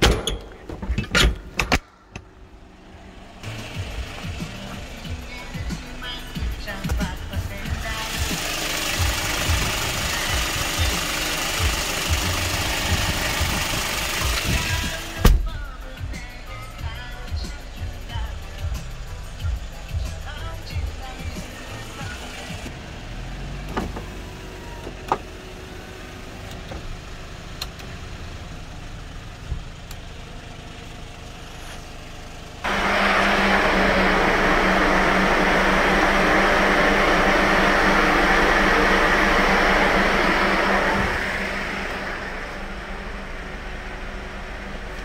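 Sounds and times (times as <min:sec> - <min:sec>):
low steady rumble: 0:00.4 - 0:22.8, 0:25.7 - 0:45.0
electric blower fan running: 0:02.8 - 0:15.3, 0:32.6 - 0:45.0.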